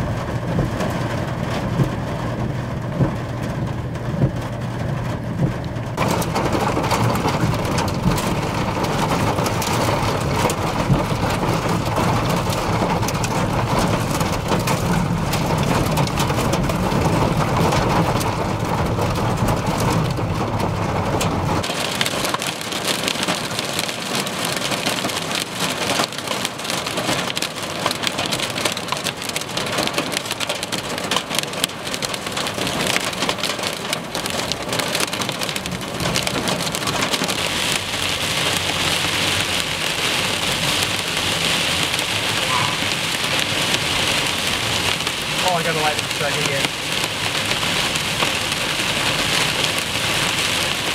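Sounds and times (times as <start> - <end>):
low rumble: 0.0 - 21.7
heavy rain on a vehicle: 0.0 - 50.9.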